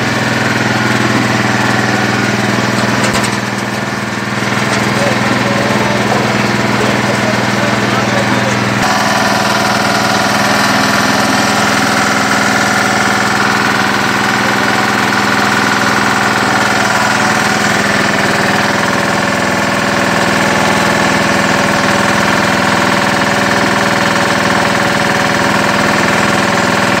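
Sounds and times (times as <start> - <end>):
belt-driven machine running: 0.0 - 27.0.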